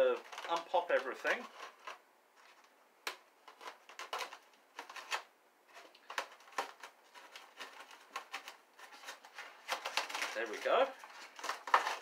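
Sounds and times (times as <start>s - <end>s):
knife scraping styrofoam: 6.6s - 12.0s.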